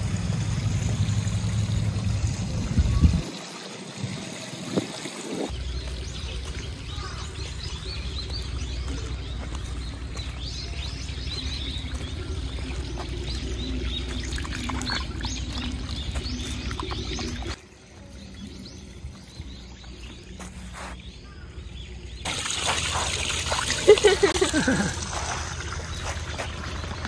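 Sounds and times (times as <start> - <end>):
water trickling and splashing: 0.0 - 27.0
small birds chirping: 5.4 - 27.0.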